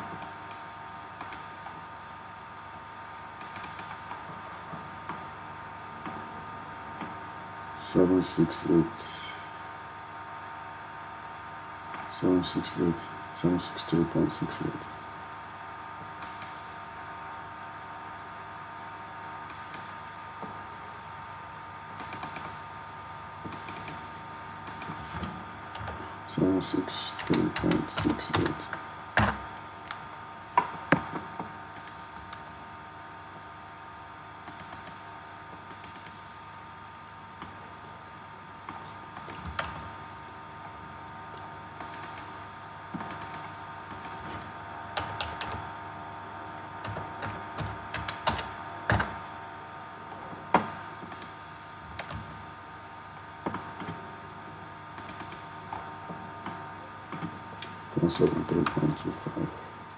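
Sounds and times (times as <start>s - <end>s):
faint steady hum: 0.0s - 59.9s
computer keyboard keystrokes: 1.2s - 1.5s, 3.4s - 4.1s, 16.2s - 16.6s, 22.0s - 22.6s, 23.5s - 24.0s, 24.7s - 25.0s, 31.7s - 32.0s, 34.4s - 35.0s, 35.7s - 36.2s, 39.1s - 39.8s, 41.8s - 42.3s, 43.0s - 44.2s, 45.0s - 45.6s, 46.8s - 49.2s, 55.0s - 55.5s
mouse clicks: 1.2s - 1.5s, 3.4s - 4.0s, 16.2s - 16.6s, 22.0s - 22.5s, 23.5s - 24.0s, 24.6s - 25.0s, 31.7s - 32.0s, 34.4s - 35.0s, 35.7s - 36.2s, 38.6s - 39.4s, 43.0s - 44.2s, 51.1s - 51.4s, 55.0s - 55.5s.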